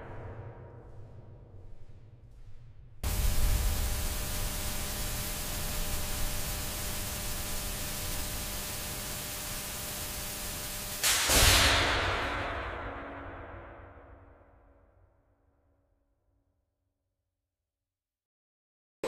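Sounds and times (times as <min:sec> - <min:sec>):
faint steady hum: 0:01.6 - 0:11.1
static-like hiss: 0:03.0 - 0:12.0.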